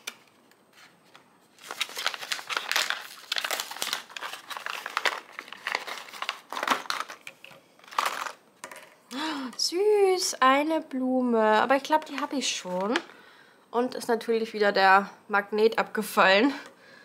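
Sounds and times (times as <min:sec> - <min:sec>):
plastic pouch crinkling: 0:01.5 - 0:08.4.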